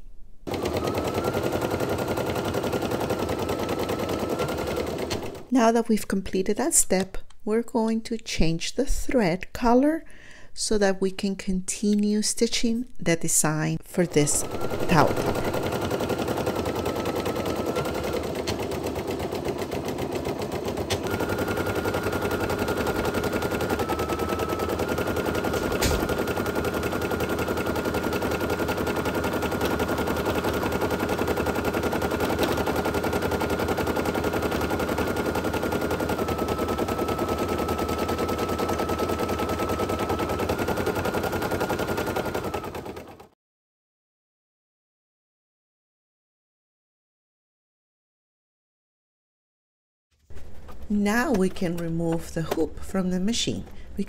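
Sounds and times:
embroidery machine stitching: 0:00.5 - 0:05.5, 0:14.0 - 0:43.4.

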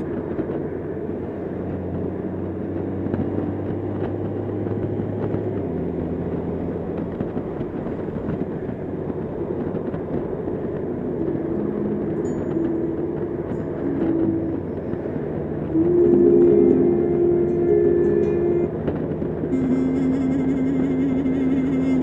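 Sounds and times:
motorcycle engine humming: 0:00.0 - 0:22.0
wind and road noise: 0:00.0 - 0:22.0.

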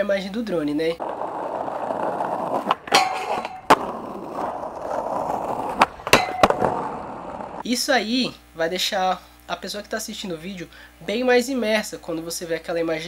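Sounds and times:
skateboard rolling on asphalt: 0:00.7 - 0:07.6
skateboard clacks: 0:01.0 - 0:07.6.

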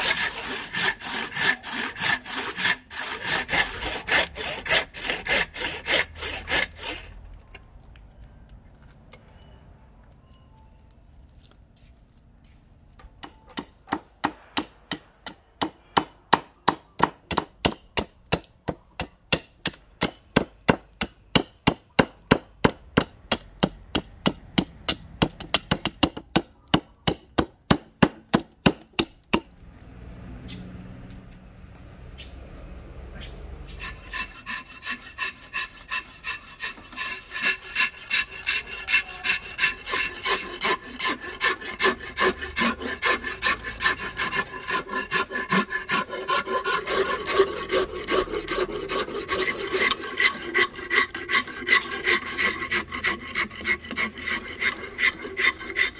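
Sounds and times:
hand saw cutting wood: 0:00.0 - 0:07.2, 0:33.8 - 0:55.9.

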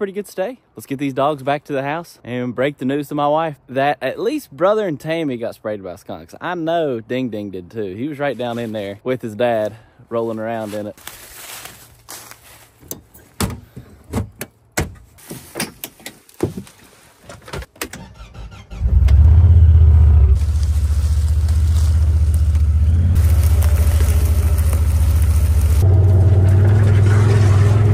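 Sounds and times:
knocks and clicks of climbing in: 0:12.8 - 0:18.0
vehicle engine starting and running: 0:17.8 - 0:27.9.

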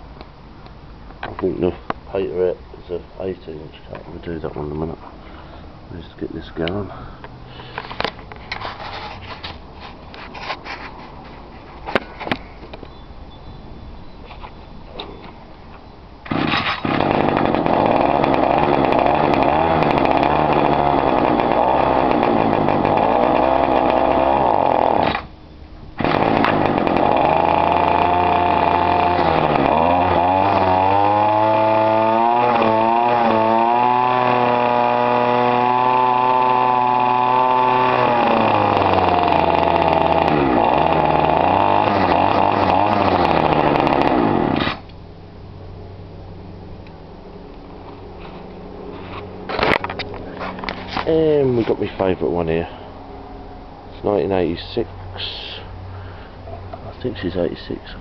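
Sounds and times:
strimmer engine running: 0:16.2 - 0:25.3, 0:26.0 - 0:45.0.

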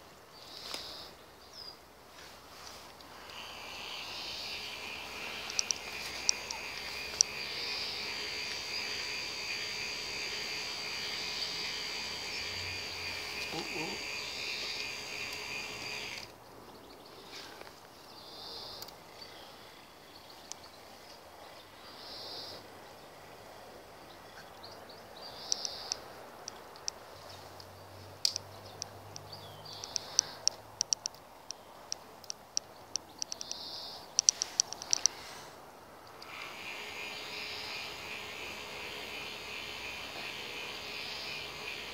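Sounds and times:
short hissing: 0:02.7 - 0:16.3, 0:36.2 - 0:41.9
small electric motor whining: 0:03.2 - 0:16.3, 0:36.1 - 0:41.9
sharp clicks: 0:03.2 - 0:16.4, 0:25.4 - 0:27.0, 0:27.6 - 0:35.2, 0:36.0 - 0:41.9.

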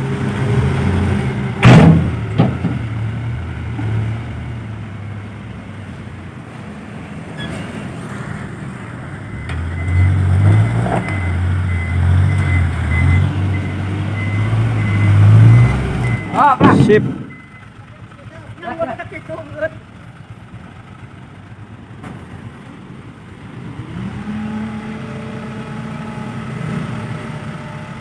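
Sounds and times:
loud bang: 0:01.6 - 0:02.8
diesel truck engine running: 0:08.3 - 0:28.0
reverse alarm beeping: 0:09.3 - 0:16.6.

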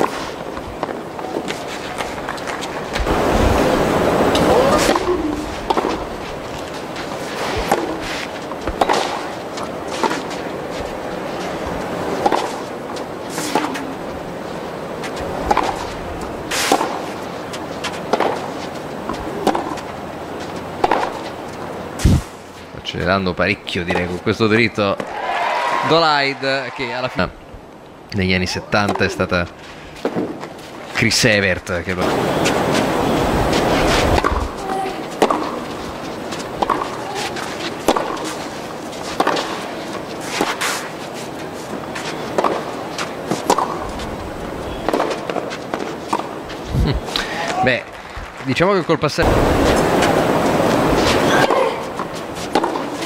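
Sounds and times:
crowd and court background: 0:00.0 - 0:03.2, 0:04.3 - 0:53.0
tennis ball struck with racquets: 0:05.7 - 0:06.0, 0:07.4 - 0:10.4, 0:12.2 - 0:14.0, 0:15.5 - 0:15.9, 0:16.5 - 0:17.2, 0:17.8 - 0:19.9, 0:20.8 - 0:21.3, 0:34.2 - 0:35.7, 0:36.6 - 0:41.0, 0:41.7 - 0:44.1, 0:44.8 - 0:46.4, 0:50.8 - 0:53.0.

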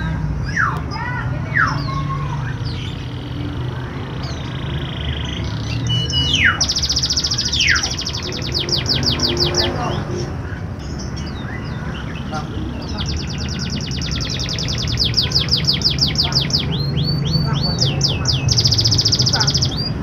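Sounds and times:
canary singing: 0:00.0 - 0:20.0.

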